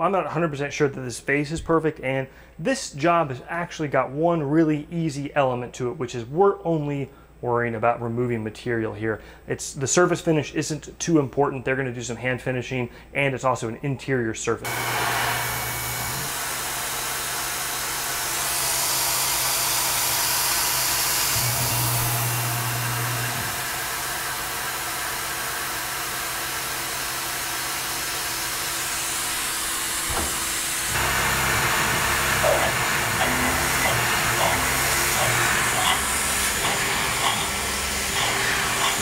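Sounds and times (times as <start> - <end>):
coolant nozzle hissing: 14.7 - 39.0
low machine hum: 14.7 - 39.0
mill drilling into aluminum: 14.7 - 39.0.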